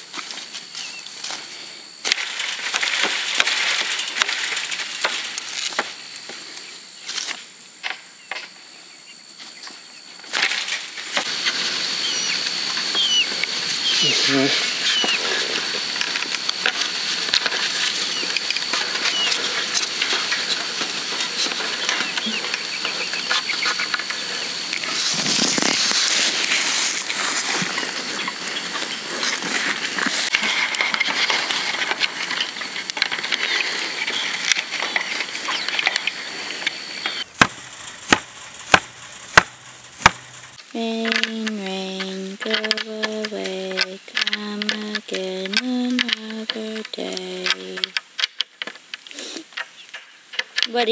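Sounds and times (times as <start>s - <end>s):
thin high-pitched whine: 10.6s - 47.9s.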